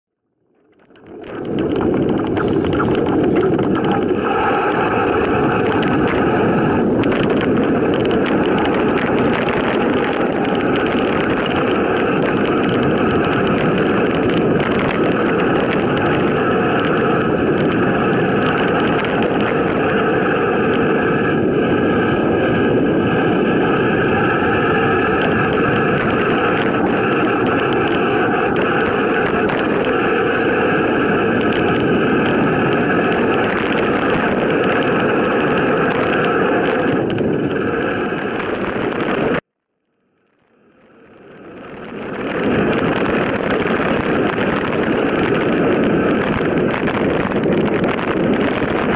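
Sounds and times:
wind and tyre noise: 0.2 - 48.9
bike knocks and rattles: 0.7 - 6.3.

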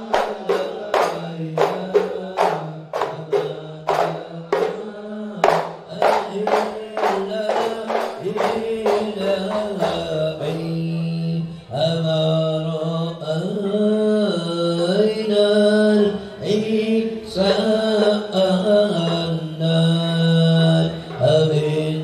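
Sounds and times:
sharp percussion strikes: 0.0 - 10.7
men chanting in unison: 0.0 - 22.0.

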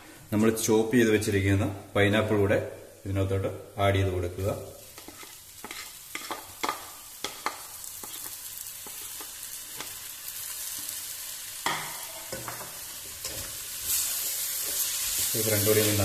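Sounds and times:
fruit sizzling in pot: 4.4 - 16.0.

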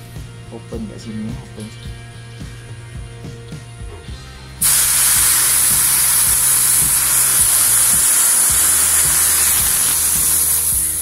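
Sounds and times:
gas hissing from fitting: 4.6 - 11.0.

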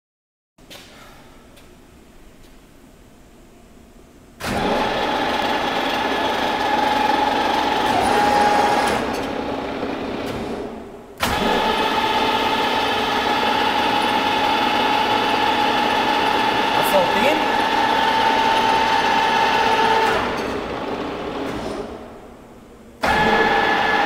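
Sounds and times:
milling machine gear whine: 4.5 - 10.3.

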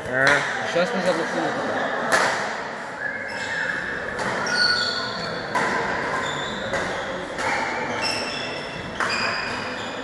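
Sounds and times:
shoes squeaking on hall floor: 3.0 - 10.0
racket hitting shuttlecock: 4.0 - 9.7.

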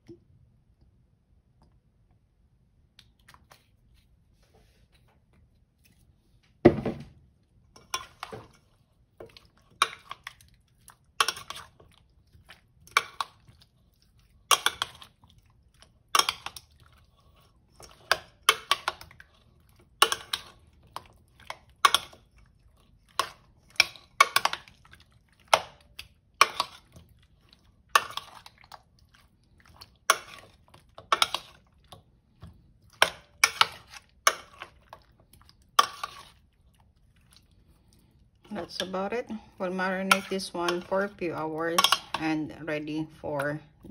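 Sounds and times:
wet meat being turned: 7.5 - 42.4
metal spoon scraping steel bowl: 35.8 - 36.4, 38.6 - 42.4.

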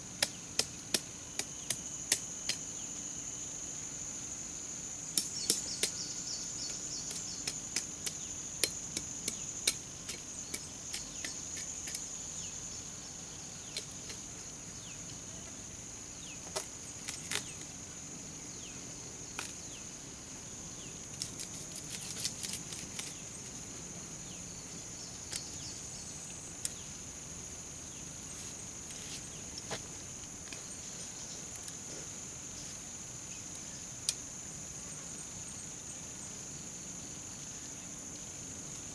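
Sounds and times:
insects chirring: 0.0 - 38.9.

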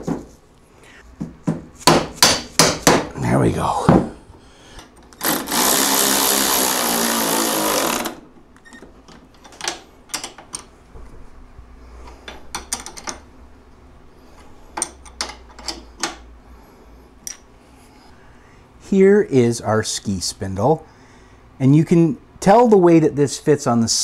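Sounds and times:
cordless electric ratchet running: 5.2 - 8.2
light clicks and taps of tools: 17.2 - 17.5.

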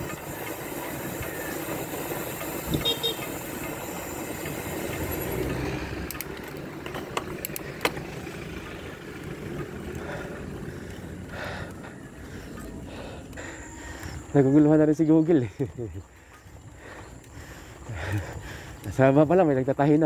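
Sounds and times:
bicycle tyres rolling on concrete: 0.0 - 20.0
sharp clicks: 5.4 - 8.1.

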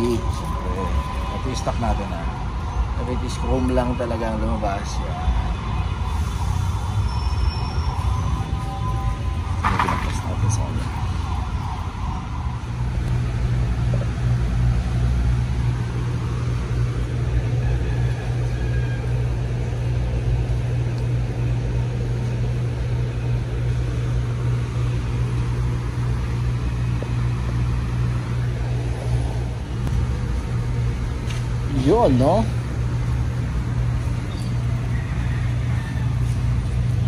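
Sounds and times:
vehicle engine idling: 0.0 - 37.0.

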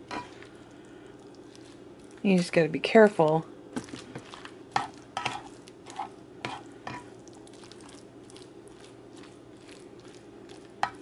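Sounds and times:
faint steady hum: 0.0 - 11.0
spatula scraping wet food: 3.8 - 11.0.

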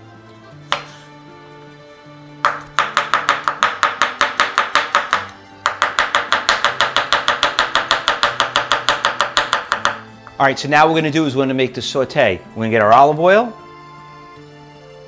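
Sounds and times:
knife chopping on cutting board: 0.7 - 1.1, 2.4 - 10.1.

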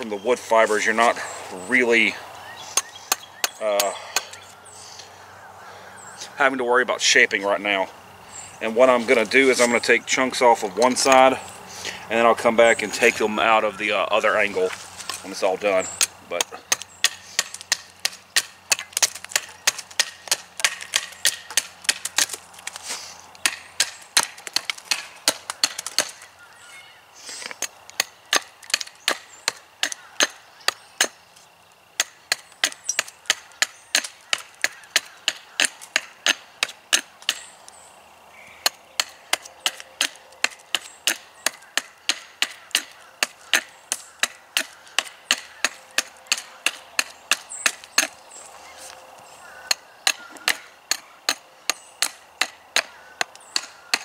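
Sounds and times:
axe chopping into log: 16.0 - 22.4, 23.4 - 26.2, 32.0 - 37.5, 38.6 - 48.2, 49.7 - 54.0.

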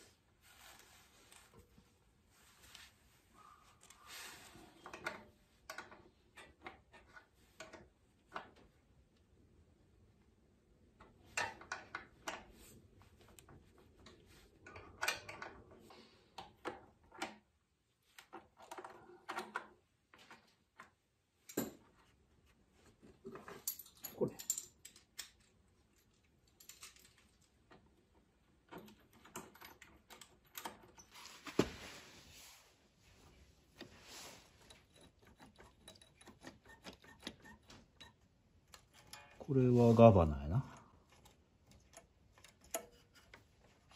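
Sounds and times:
hand tools clicking and clinking: 23.3 - 27.5, 34.4 - 39.6.

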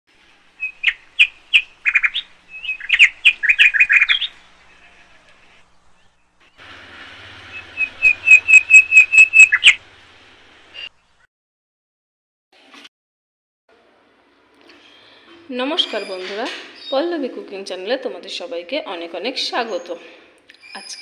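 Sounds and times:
small bird chirping: 0.6 - 6.6, 7.5 - 9.8.

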